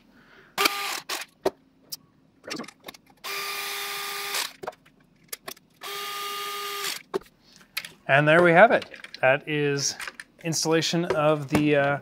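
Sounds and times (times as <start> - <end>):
electric screwdriver whining: 0.6 - 1.2, 3.2 - 4.6, 5.8 - 7.0.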